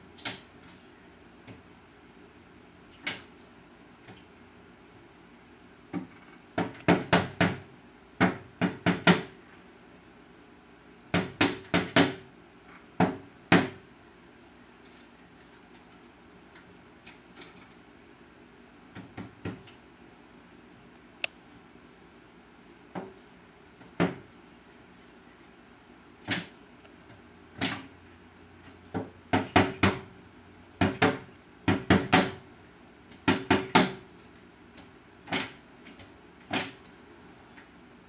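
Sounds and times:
woodpecker knocking on window: 5.9 - 9.3, 11.1 - 12.2, 28.9 - 30.1, 30.8 - 32.4, 33.2 - 34.0.

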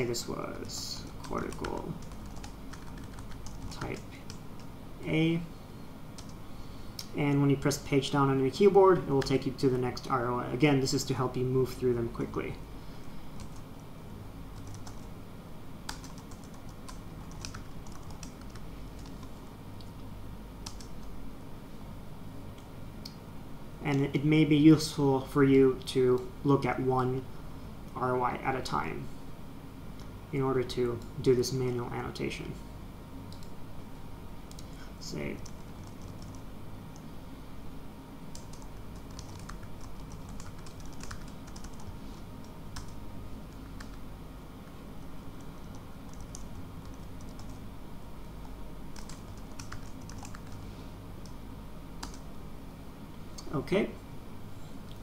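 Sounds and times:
low steady hum: 0.0 - 55.0
typing on computer keyboard: 1.2 - 4.4, 14.6 - 15.1, 15.9 - 19.3, 35.4 - 36.4, 38.4 - 41.9, 46.1 - 47.6, 49.0 - 50.6, 52.0 - 52.2.

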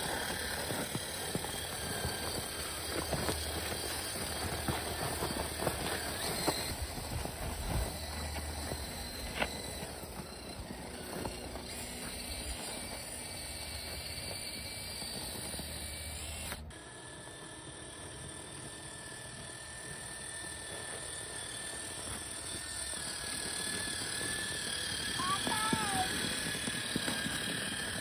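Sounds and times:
tracks in snow: 0.0 - 16.5
electric motor and gear whine: 0.0 - 28.0.

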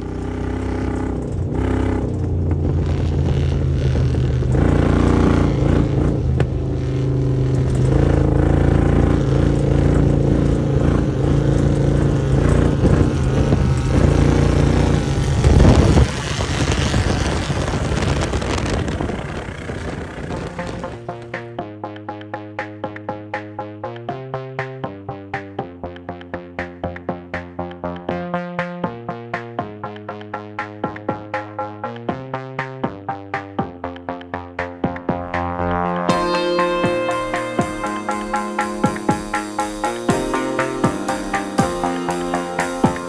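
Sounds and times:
vehicle engine running: 0.0 - 43.0
loud rush: 12.7 - 21.1.

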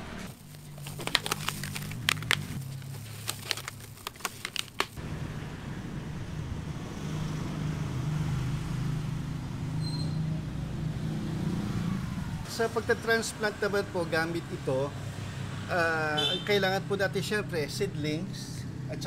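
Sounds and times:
foil insulation crinkling: 0.3 - 5.0.

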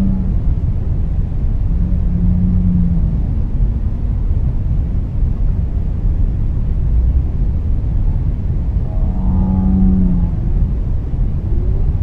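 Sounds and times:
low whale call: 0.0 - 0.6, 1.6 - 3.6, 8.8 - 10.8
deep underwater rumble: 0.0 - 12.0
faint higher whale call: 1.7 - 3.3, 8.8 - 10.6.

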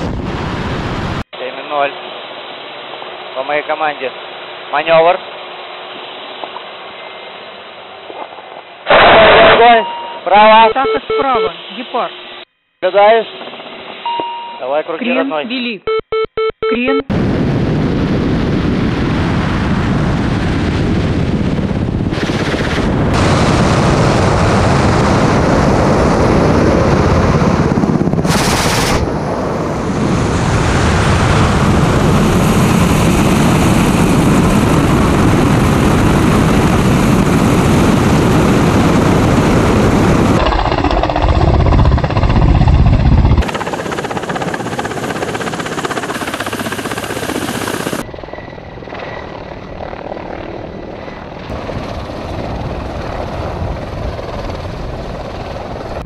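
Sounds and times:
heavy wind rush: 0.0 - 1.2, 17.1 - 56.0
helicopter passing overhead: 20.5 - 56.0
helicopter rotor and engine: 20.6 - 30.4, 31.2 - 56.0.

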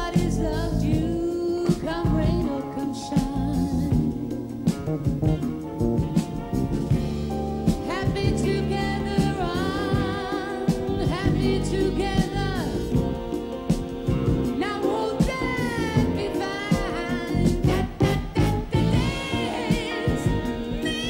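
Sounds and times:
drums keeping time: 0.0 - 21.0
jazz band playing: 0.0 - 21.0
woman singing jazz ballad: 0.0 - 21.0.

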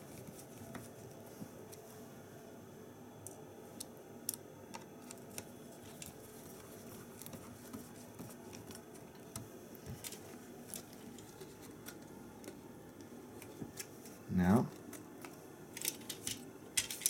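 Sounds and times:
small parts clicking and tapping: 14.7 - 17.0.

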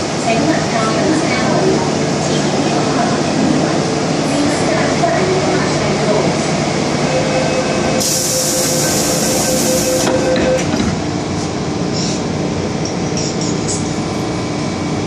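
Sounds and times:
train motor tones: 7.0 - 11.0
hiss: 8.0 - 9.3.

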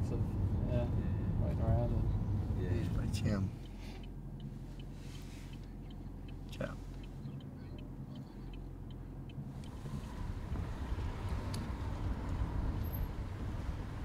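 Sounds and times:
car engine and road noise: 0.0 - 14.0
light ticks: 2.8 - 10.2, 11.3 - 12.4.

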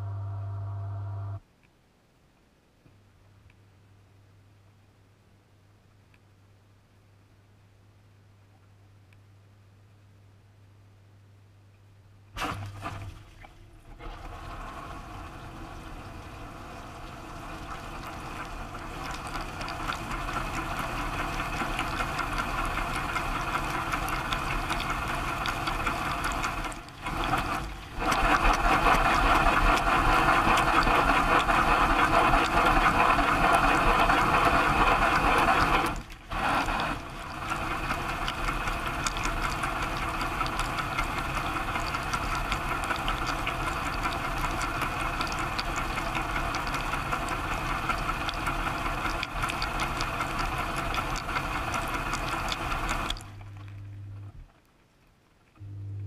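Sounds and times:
dishwasher water jets spraying: 14.0 - 53.4.

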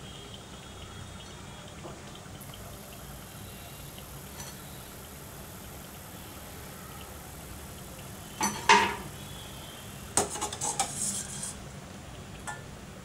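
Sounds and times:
metal skimmer clinking against pan: 8.4 - 9.1, 12.5 - 12.7.

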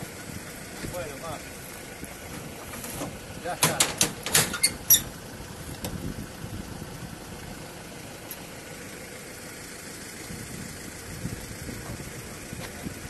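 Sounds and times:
pickup truck engine idling: 0.0 - 13.0
metal cage door clanking: 2.9 - 5.1.

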